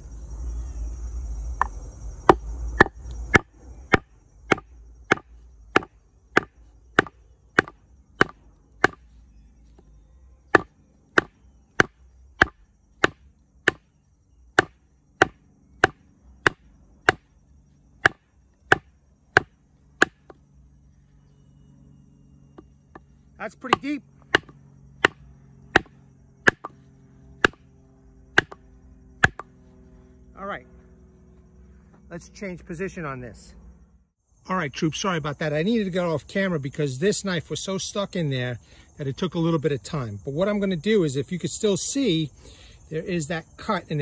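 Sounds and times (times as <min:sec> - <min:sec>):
baton striking knife spine: 0:02.3 - 0:09.0, 0:10.6 - 0:13.8, 0:23.7 - 0:25.2, 0:26.5 - 0:26.7, 0:28.4 - 0:28.6, 0:29.2 - 0:29.5.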